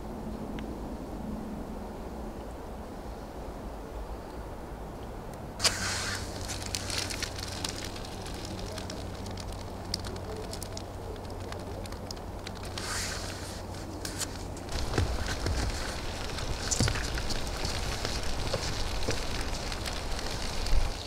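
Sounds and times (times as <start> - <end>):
match struck and flaring: 5.6 - 8.2, 12.7 - 20.7
twig fire crackling: 5.6 - 21.0.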